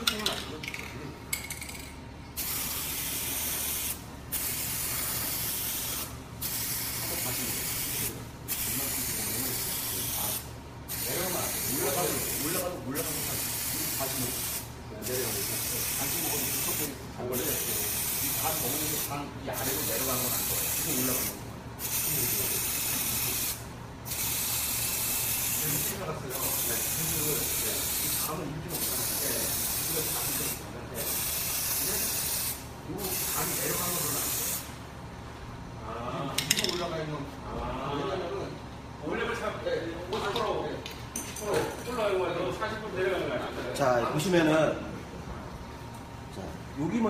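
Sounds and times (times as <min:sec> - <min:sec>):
aerosol can spraying: 0:02.4 - 0:34.7.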